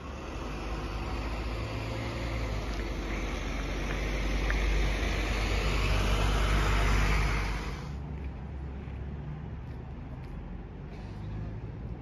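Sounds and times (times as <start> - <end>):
fire engines idling: 0.0 - 8.0
rushing noise: 0.0 - 8.0.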